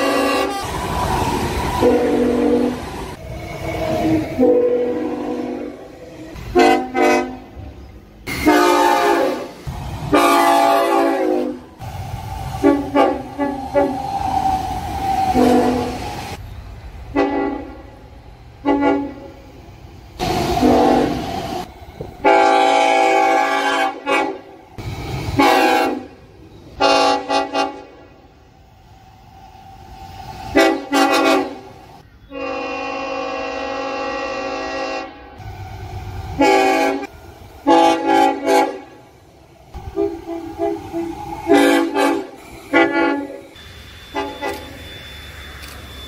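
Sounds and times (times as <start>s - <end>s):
train horn toots and blasts: 0.0s - 0.7s, 1.8s - 2.8s, 4.3s - 7.7s, 8.3s - 11.7s, 12.6s - 14.0s, 15.3s - 16.0s, 17.1s - 18.0s, 18.6s - 19.4s, 20.6s - 21.2s, 22.2s - 24.6s, 25.4s - 26.2s, 26.8s - 28.2s, 30.5s - 35.4s, 36.4s - 39.1s, 39.8s - 43.5s, 44.1s - 44.8s
train running noise: 0.0s - 46.0s.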